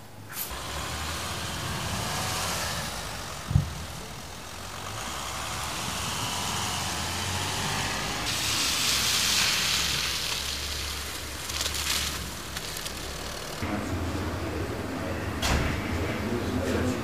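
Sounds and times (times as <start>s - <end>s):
tyres hissing on wet road: 0.4s - 13.6s
car engine hum: 0.5s - 13.6s.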